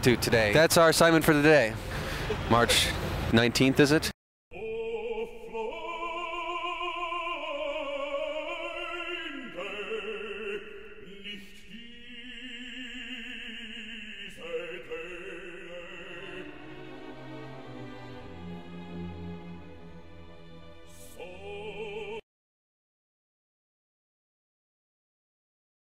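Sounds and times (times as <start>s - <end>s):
operatic singing with vibrato: 4.5s - 22.2s.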